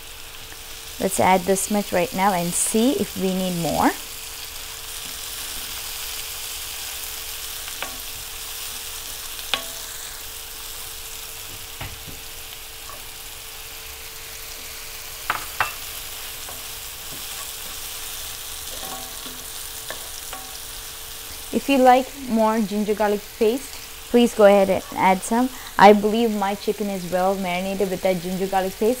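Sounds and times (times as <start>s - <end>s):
food sizzling in oil: 0.0s - 29.0s
spoon clinking against pan: 18.7s - 20.6s.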